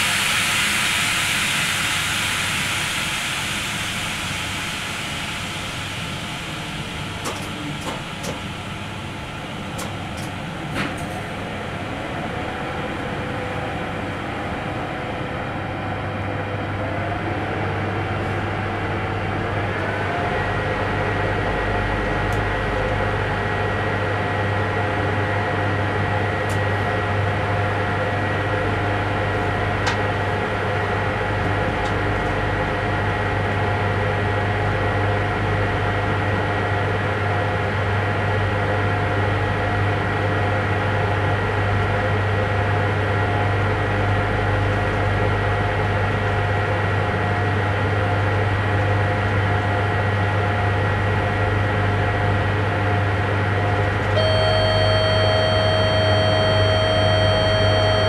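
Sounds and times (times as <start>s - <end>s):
electric train running: 0.0s - 15.6s, 53.6s - 58.0s.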